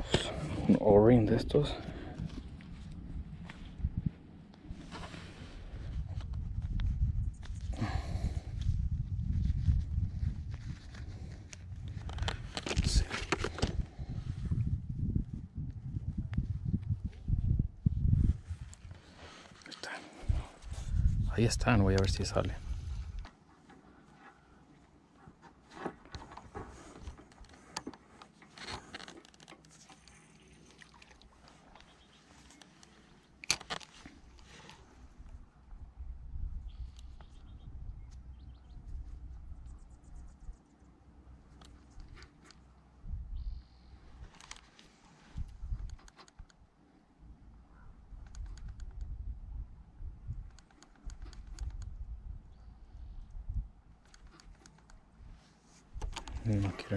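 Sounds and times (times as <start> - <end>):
wind rumble on microphone: 0.0 - 23.3, 34.8 - 40.7, 42.9 - 44.6, 45.2 - 46.6, 47.3 - 56.9.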